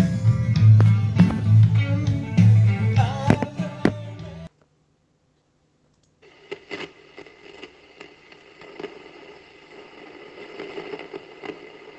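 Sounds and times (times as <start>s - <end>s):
vinyl record crackle: 0.0s - 4.2s, 6.2s - 11.9s
music: 0.0s - 4.5s
low steady hum: 0.0s - 11.9s.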